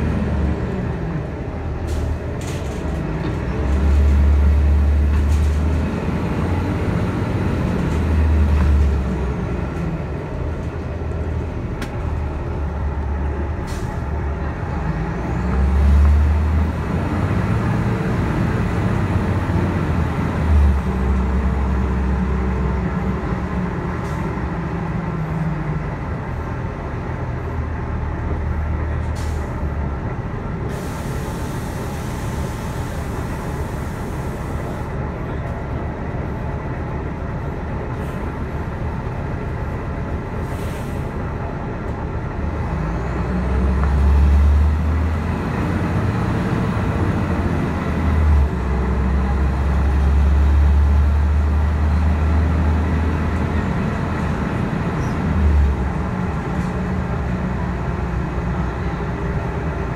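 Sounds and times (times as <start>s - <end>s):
bus engine running: 0.0s - 59.9s
air brake hiss: 29.2s - 29.5s, 30.7s - 34.9s, 40.4s - 41.1s.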